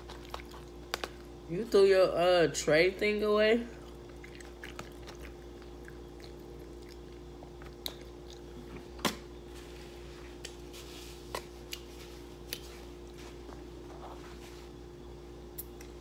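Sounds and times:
person chewing: 0.0s - 1.3s, 3.8s - 9.0s, 11.3s - 13.2s
faint steady hum: 0.0s - 16.0s.

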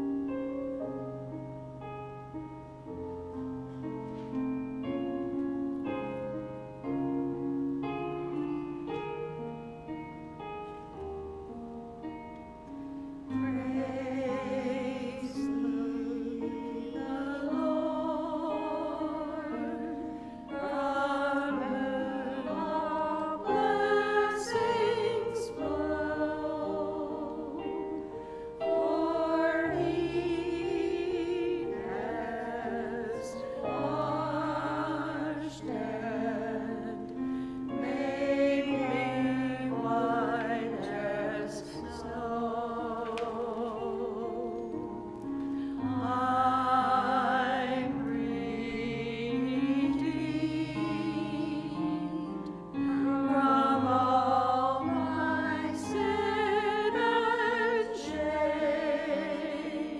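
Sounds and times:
choir singing: 13.3s - 44.8s, 45.7s - 59.9s.

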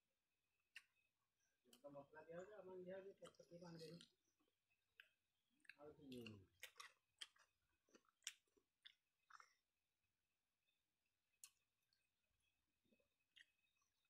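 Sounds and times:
chewing: 3.2s - 9.8s, 11.3s - 14.0s.

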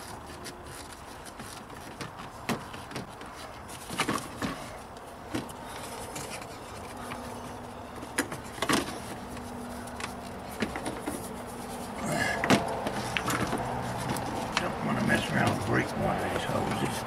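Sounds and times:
plastic and rubber parts knocking: 0.8s - 4.7s, 5.3s - 11.4s, 12.4s - 15.7s.

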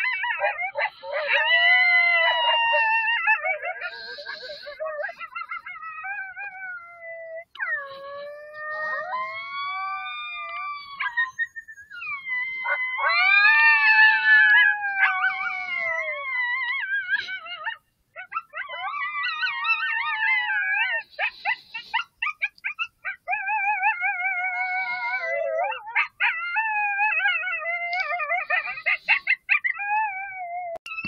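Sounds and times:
coyotes howling and yipping: 0.0s - 31.0s.

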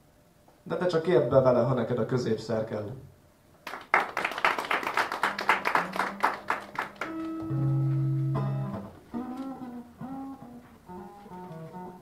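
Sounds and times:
people clapping: 3.6s - 8.3s
acoustic guitar playing: 5.5s - 12.0s.

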